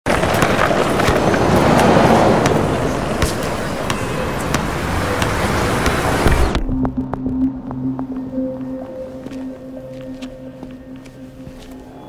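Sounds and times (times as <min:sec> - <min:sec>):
city street traffic: 0:00.0 - 0:12.0
car passing close: 0:00.1 - 0:06.6.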